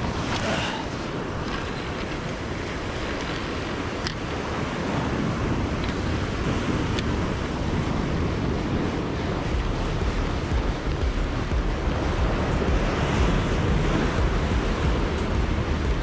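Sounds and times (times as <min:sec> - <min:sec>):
surf washing against rocks: 0:00.0 - 0:16.0
wind buffeting microphone: 0:00.0 - 0:16.0.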